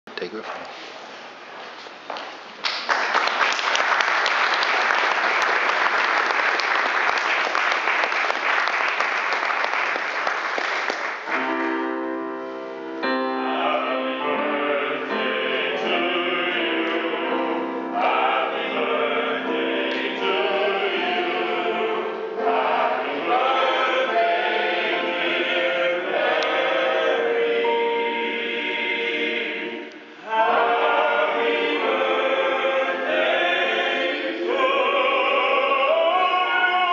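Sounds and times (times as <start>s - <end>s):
audience applause: 2.6s - 11.5s
digital piano chords: 11.3s - 35.8s
men singing together: 13.5s - 17.4s, 18.0s - 36.9s.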